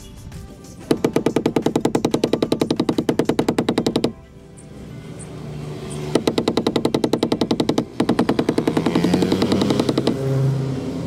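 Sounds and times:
rubber mallet tapping metal: 0.8 - 4.2, 6.1 - 10.2.

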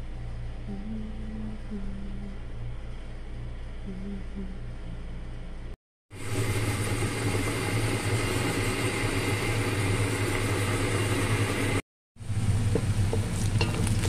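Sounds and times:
low motor hum: 0.0 - 14.0
frying hiss: 6.2 - 14.0.

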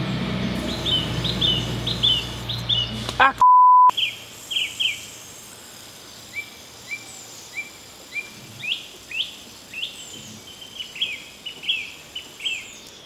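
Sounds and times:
songbird chirping: 0.5 - 13.0
outdoor background hiss: 3.9 - 13.0.

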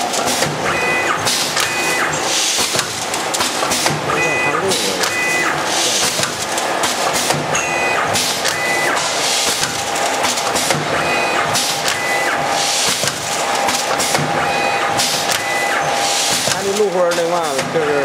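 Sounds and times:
mechanical clatter: 0.0 - 18.0
packing machine hiss: 1.2 - 4.0, 4.6 - 7.4, 8.1 - 10.8, 11.5 - 14.3, 14.9 - 17.7.

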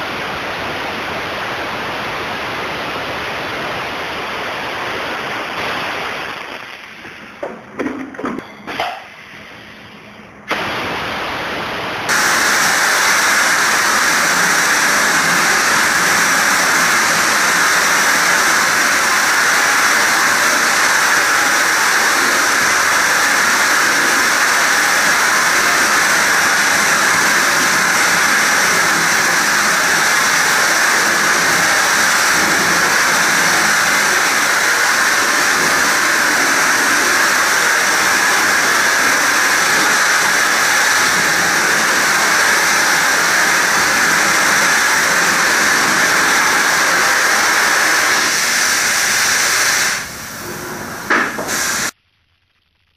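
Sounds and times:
spray gun hissing: 12.1 - 52.0.

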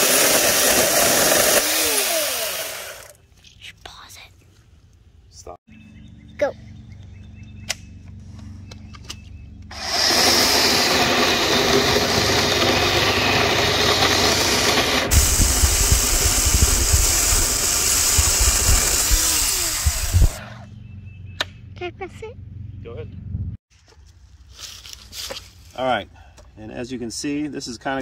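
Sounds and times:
electric chainsaw cutting log: 0.0 - 3.2, 9.7 - 20.6.

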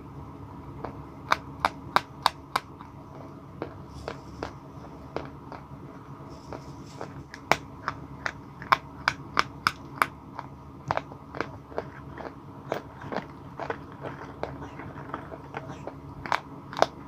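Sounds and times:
chalk crunching between teeth: 6.3 - 17.0.

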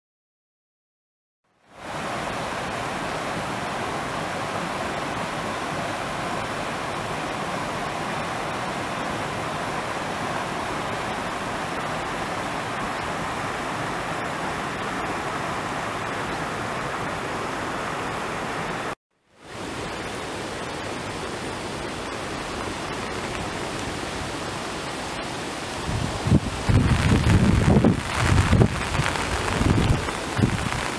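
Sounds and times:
steady rushing noise: 10.9 - 30.9.

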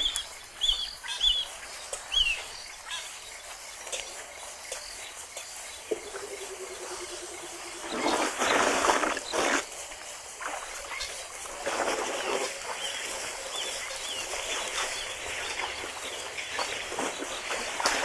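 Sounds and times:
water splashing and sloshing: 5.2 - 18.0.

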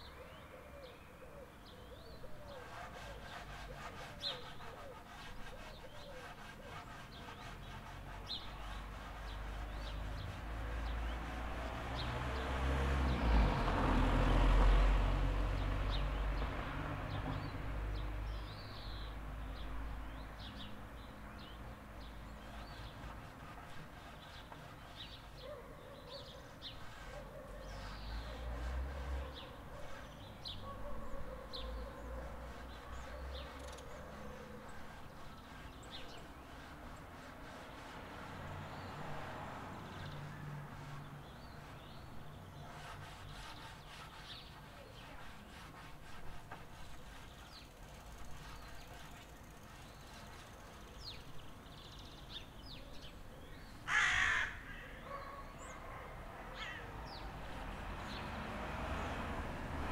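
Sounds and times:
loud harsh bird call: 2.2 - 10.3, 53.7 - 55.2.

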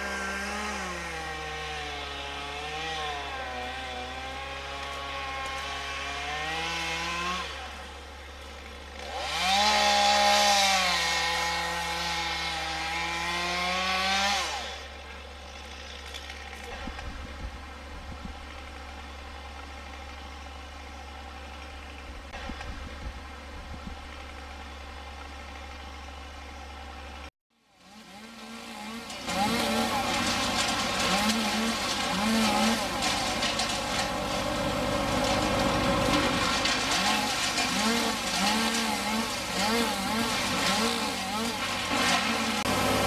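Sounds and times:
engine revving: 0.0 - 7.9, 9.0 - 14.8, 27.8 - 43.0
engine running steadily: 14.8 - 27.3, 28.1 - 43.0.

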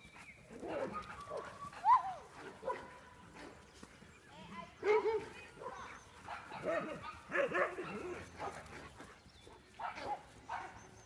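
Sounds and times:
dogs barking: 2.4 - 3.6, 4.8 - 11.0.

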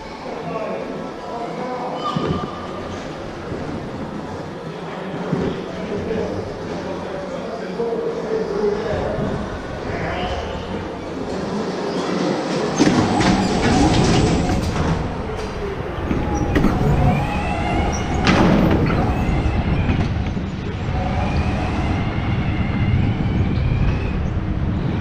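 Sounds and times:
tyres squealing: 11.9 - 20.2.

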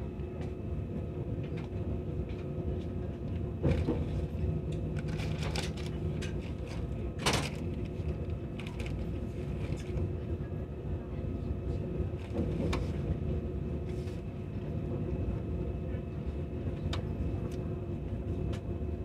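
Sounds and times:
train wheels rumbling on track: 0.0 - 19.0.

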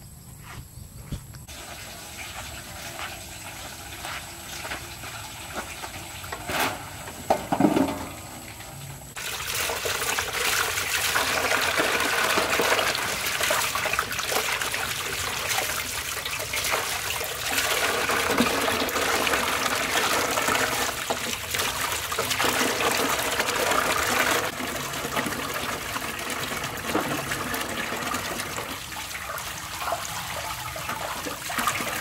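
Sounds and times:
water running into metal basin: 1.5 - 32.0
knocks on metal basin: 7.2 - 8.2
water splashing: 8.1 - 32.0.

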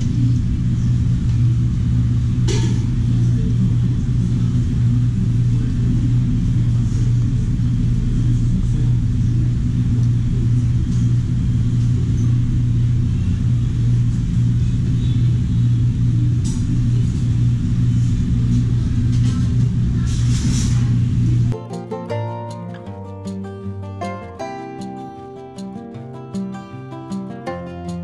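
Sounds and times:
loud low machine hum: 0.0 - 21.6.

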